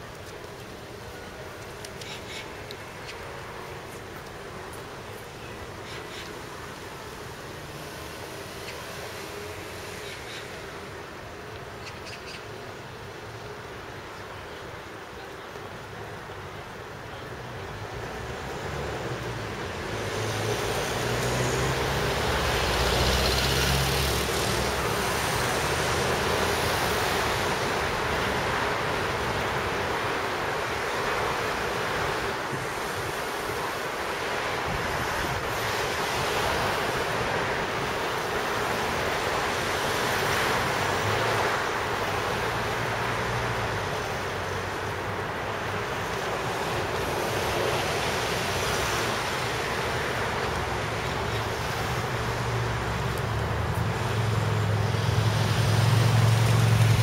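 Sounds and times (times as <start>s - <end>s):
city traffic: 0.0s - 57.0s.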